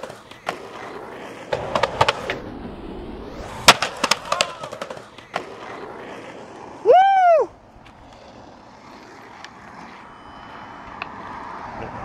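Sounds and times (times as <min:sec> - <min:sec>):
person yelling: 0:04.2 - 0:04.8, 0:06.8 - 0:07.5.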